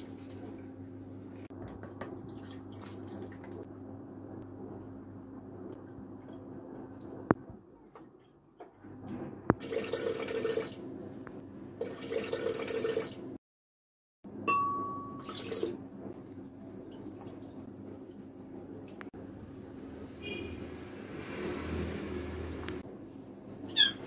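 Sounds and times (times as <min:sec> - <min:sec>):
low steady hum: 0:00.0 - 0:12.0, 0:14.3 - 0:20.8
milk pouring into a jug: 0:09.6 - 0:10.8
short ringing tone: 0:14.5 - 0:15.3.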